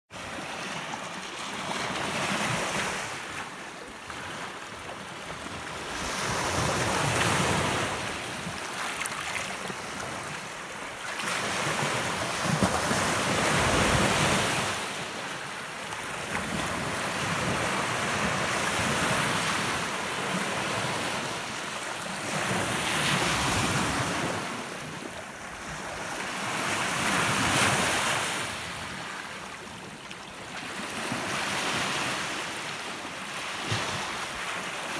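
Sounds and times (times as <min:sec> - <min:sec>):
small waves breaking on sand: 0:00.2 - 0:34.9.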